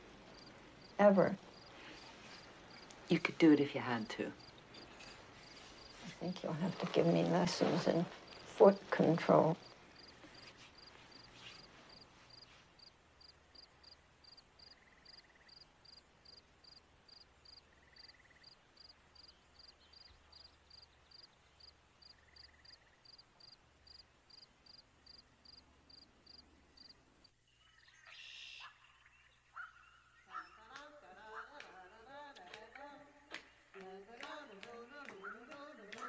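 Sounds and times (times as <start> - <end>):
cricket chirping: 0.3 - 2.9, 4.4 - 6.0, 9.6 - 27.9.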